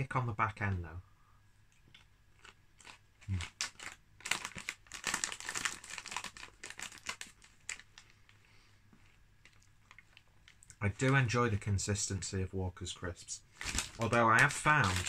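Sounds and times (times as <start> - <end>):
crisps crunching while chewed: 1.9 - 8.1, 13.6 - 15.0.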